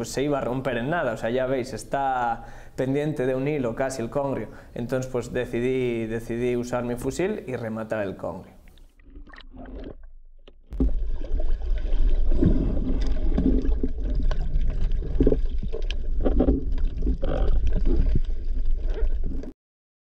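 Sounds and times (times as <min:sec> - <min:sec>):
muffled underwater sloshing: 0:08.6 - 0:19.5.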